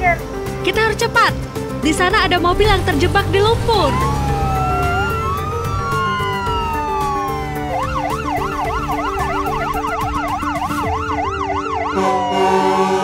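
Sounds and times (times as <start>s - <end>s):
ambulance siren wailing: 2.5s - 13.0s
siren fast yelp: 3.8s - 13.0s.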